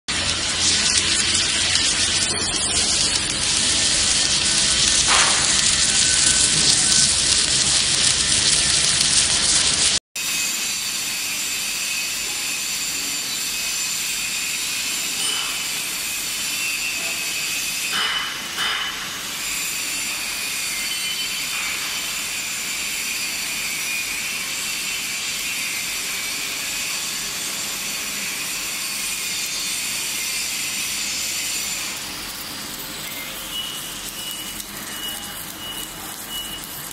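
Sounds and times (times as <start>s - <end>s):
factory machine noise: 0.1s - 36.9s
welding arc hissing: 0.1s - 36.9s.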